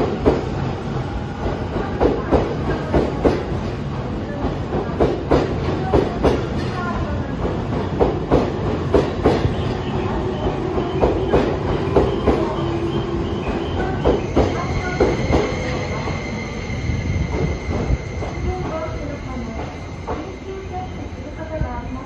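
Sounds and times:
high steady brake squeal: 9.1s - 21.3s.

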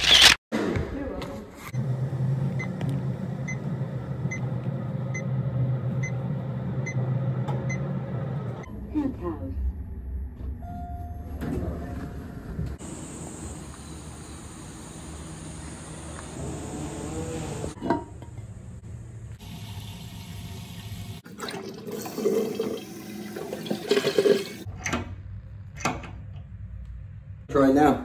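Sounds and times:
toilet flushing: 19.4s - 24.7s
toilet tank refilling: 19.4s - 24.7s.

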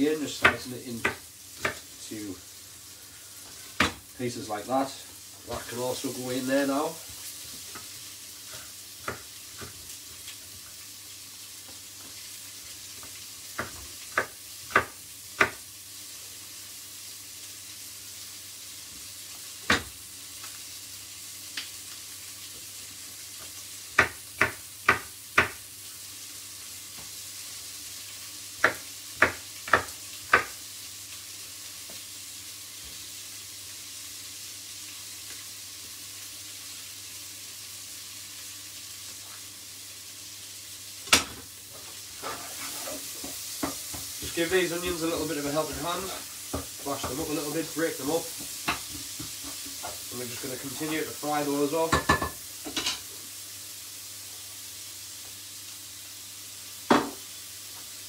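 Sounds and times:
vegetables sizzling in a pot: 0.0s - 58.0s
knife chopping on wooden board: 13.6s - 15.6s, 24.0s - 25.6s, 28.6s - 30.6s.

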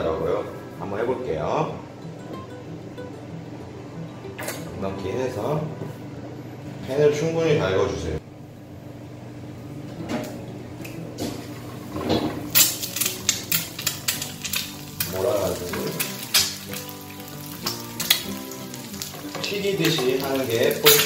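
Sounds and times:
egg cracking: 12.5s - 21.0s.

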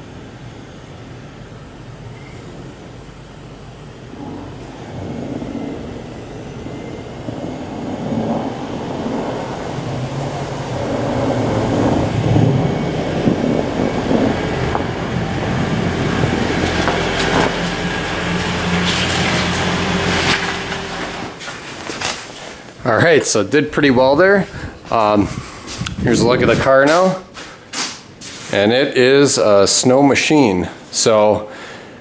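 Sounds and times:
low steady hum: 0.0s - 27.6s
tyres crunching through snow: 7.5s - 23.4s.

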